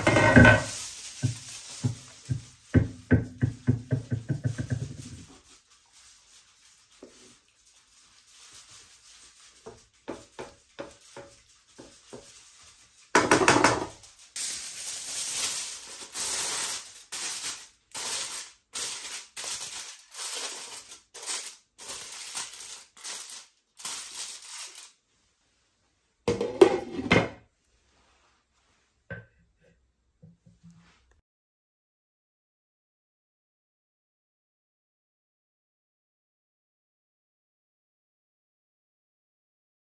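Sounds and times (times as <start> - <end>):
aluminium foil crinkling: 0.0 - 2.9, 3.9 - 25.0
wooden spoon scraping rice in wok: 0.0 - 24.9.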